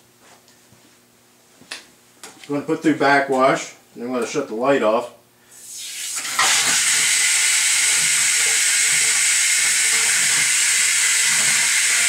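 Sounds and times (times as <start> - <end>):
water rushing through valve: 5.6 - 12.0.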